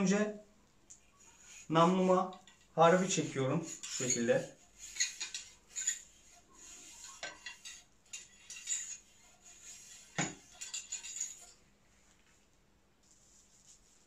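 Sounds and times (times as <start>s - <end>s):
metal scraping and clinking: 2.3s - 11.6s.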